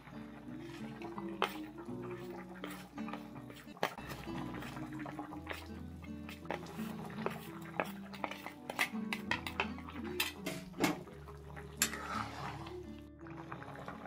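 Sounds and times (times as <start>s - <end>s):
background music: 0.0s - 14.0s
metal spoon scraping a plate: 11.8s - 12.7s.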